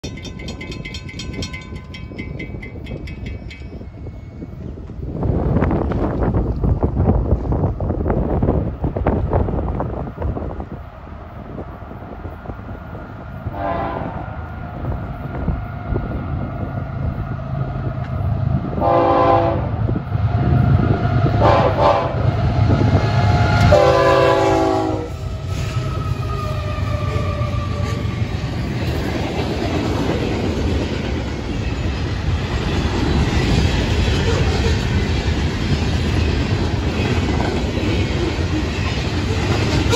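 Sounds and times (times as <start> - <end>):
train wheels clacking over rail joints: 0.0 - 4.0, 26.4 - 39.9
low rumble of locomotives: 0.0 - 39.9
train horn blasts: 13.5 - 14.2, 18.8 - 19.8, 21.4 - 28.1.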